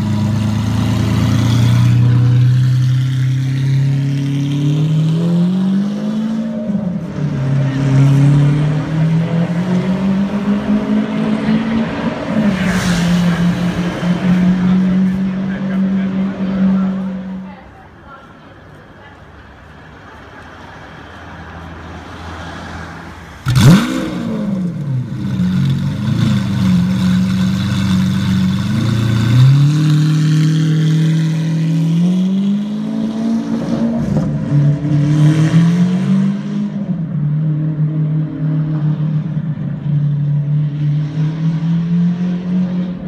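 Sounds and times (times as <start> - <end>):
car engine starting and revving: 0.0 - 17.4, 22.4 - 43.0.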